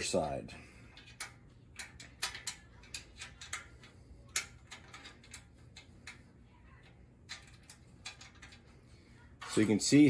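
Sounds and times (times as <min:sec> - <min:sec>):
small hardware parts clicking: 0:00.9 - 0:06.2.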